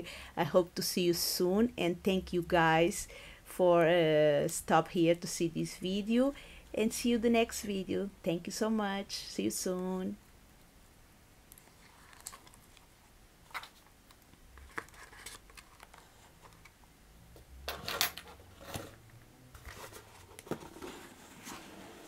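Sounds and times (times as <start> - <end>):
hands handling cardboard box: 19.6 - 21.8.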